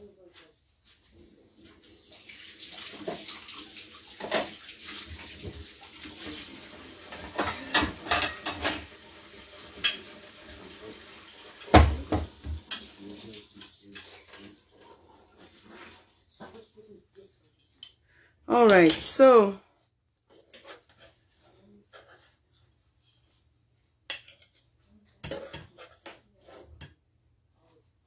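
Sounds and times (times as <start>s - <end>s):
kitchen tap running: 1.7s - 14.8s
dishes and cutlery clattering: 4.2s - 5.6s, 6.2s - 9.0s, 9.7s - 10.4s, 11.5s - 13.0s, 13.6s - 15.8s, 24.1s - 26.9s.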